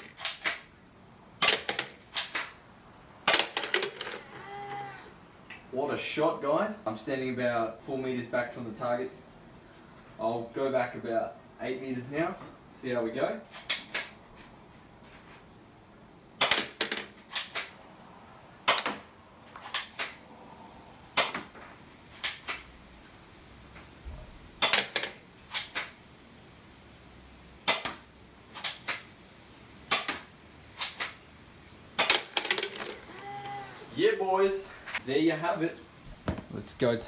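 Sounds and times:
gel balls hitting plastic target: 0:36.2 - 0:36.6.

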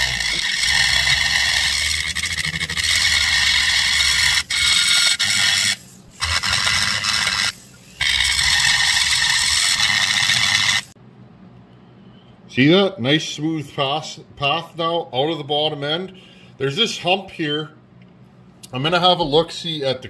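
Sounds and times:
rotary tool grinding whine: 0:00.0 - 0:11.0.

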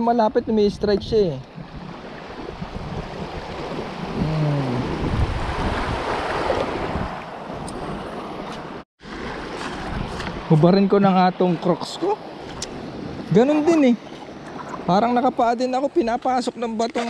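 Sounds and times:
wind buffeting microphone: 0:00.0 - 0:10.9
sea waves breaking on rocks: 0:04.8 - 0:15.0.

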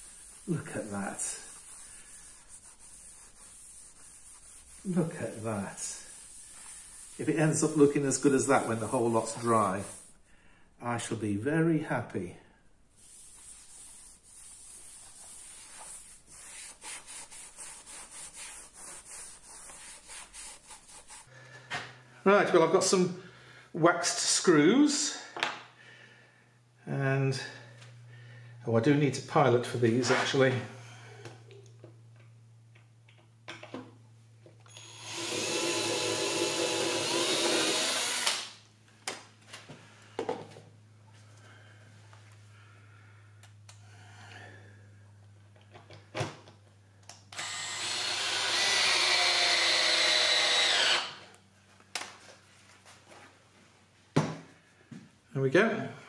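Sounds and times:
cloth rag rubbing wood: 0:00.0 - 0:10.2, 0:13.0 - 0:21.3
power drill drilling into wood: 0:34.7 - 0:38.5, 0:47.4 - 0:51.2.

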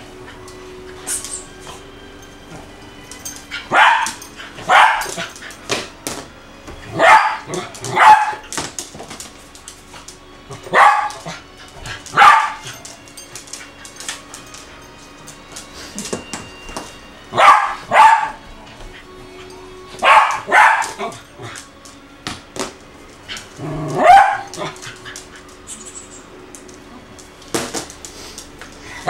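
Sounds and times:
dog barking: 0:03.7 - 0:05.3, 0:07.0 - 0:08.4, 0:10.7 - 0:11.2, 0:12.2 - 0:12.7, 0:17.4 - 0:18.4, 0:20.0 - 0:21.1, 0:24.0 - 0:24.8.

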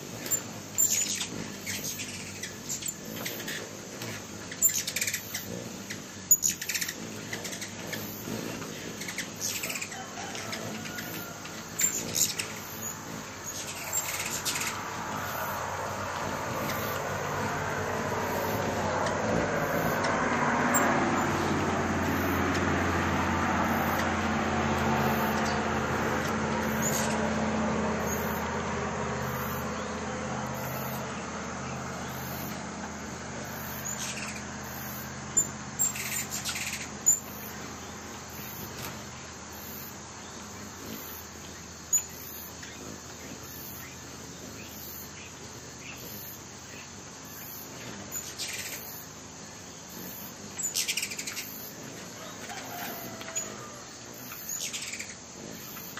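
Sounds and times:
passing vehicle rumble: 0:00.0 - 0:55.9
high bird chirps: 0:04.4 - 0:08.1, 0:33.5 - 0:38.5, 0:54.3 - 0:55.9.

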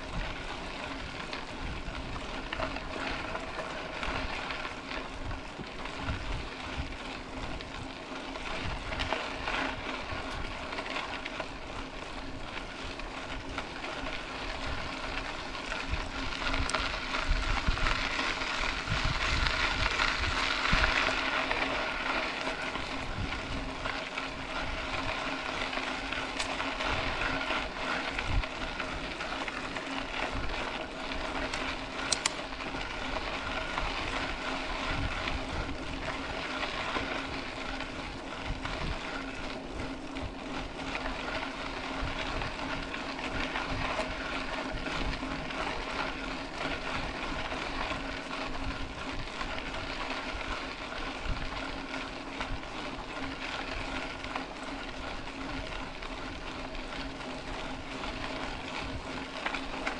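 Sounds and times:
bike clicks and rattles: 0:00.0 - 0:59.9
bike tyres on gravel: 0:00.0 - 0:59.9
wind buffeting microphone: 0:05.1 - 0:10.8, 0:14.5 - 0:48.0.

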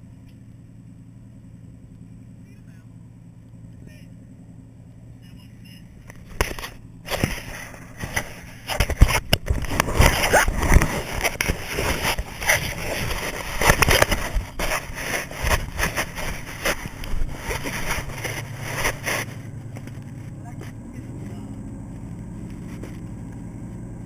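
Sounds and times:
low steady hum: 0:00.0 - 0:24.0
hand rubbing on camera housing: 0:06.2 - 0:20.2.

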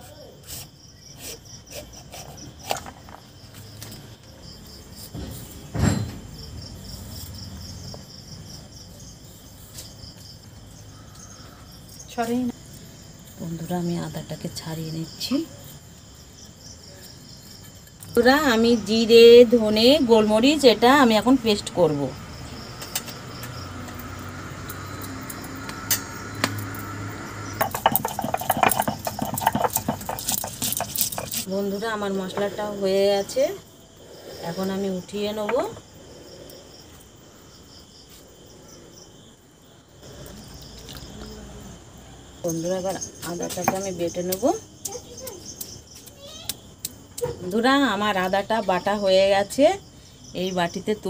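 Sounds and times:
crickets chirping: 0:00.0 - 0:51.0
stone roller grinding on stone: 0:25.6 - 0:31.5.

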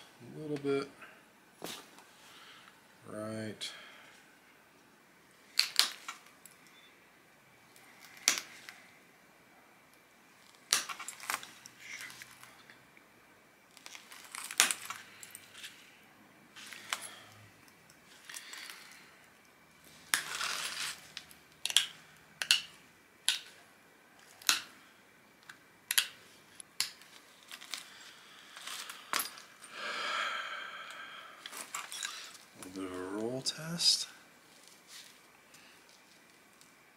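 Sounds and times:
stone flaking clicks and snaps: 0:21.2 - 0:22.7, 0:24.4 - 0:24.7, 0:25.4 - 0:27.0.

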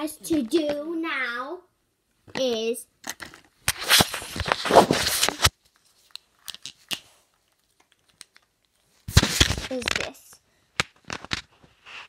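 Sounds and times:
handling noise scraping and rustling: 0:03.1 - 0:07.2.

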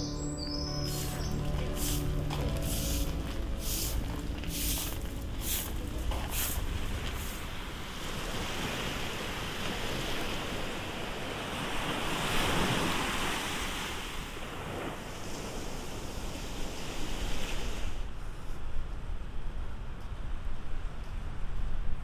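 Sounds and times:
waves washing up a beach: 0:00.9 - 0:18.4
wind rumbling on microphone: 0:01.0 - 0:22.0.

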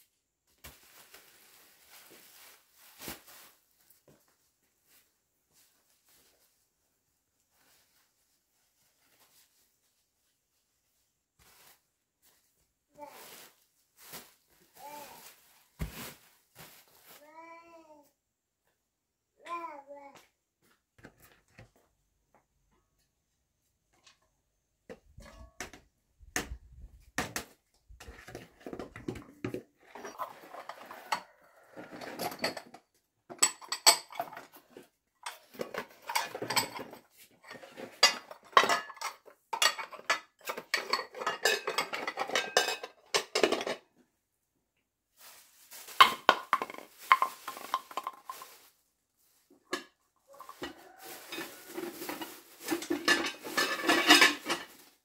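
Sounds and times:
dishes and pots clattering: 0:24.9 - 0:26.5, 0:27.2 - 0:43.8, 0:45.9 - 0:48.6, 0:49.7 - 0:54.9.

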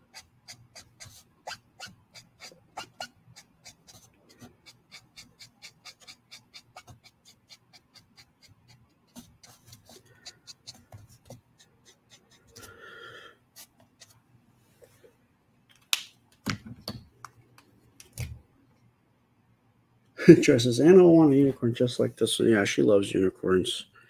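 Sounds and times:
marker scratching on paper: 0:00.0 - 0:12.8.

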